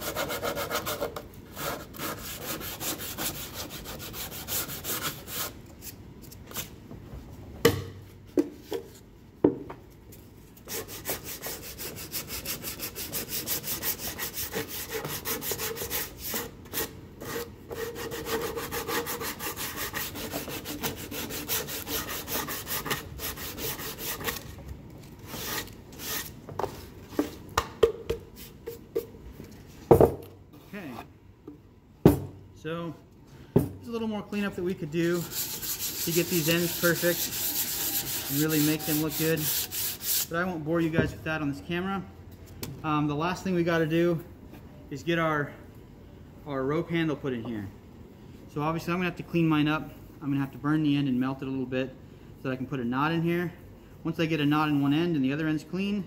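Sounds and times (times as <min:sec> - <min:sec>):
sandpaper rasping on wood: 0:00.0 - 0:05.6, 0:10.7 - 0:24.4, 0:35.0 - 0:40.3.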